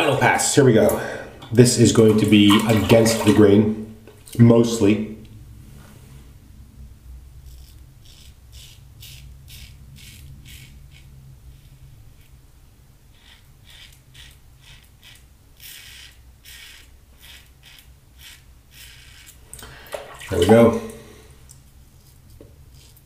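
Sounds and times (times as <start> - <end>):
razor scraping stubble: 7.4 - 12.4, 13.1 - 19.5.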